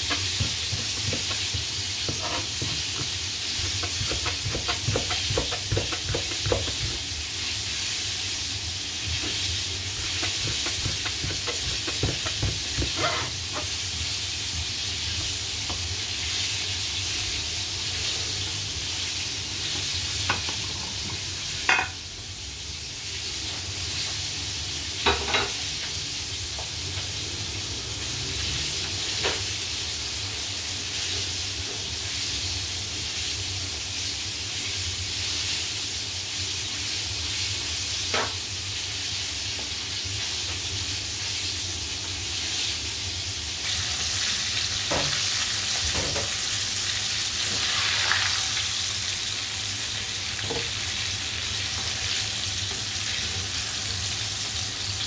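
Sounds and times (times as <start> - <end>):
knife tapping on cutting board: 0.0 - 7.0, 10.0 - 13.2.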